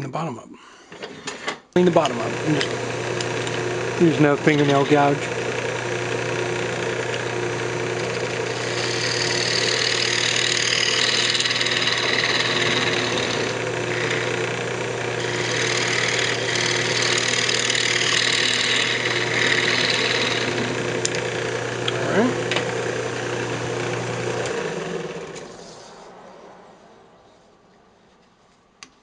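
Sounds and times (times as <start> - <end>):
wood lathe humming: 1.8 - 26.0
gouge scraping wood: 3.2 - 21.9.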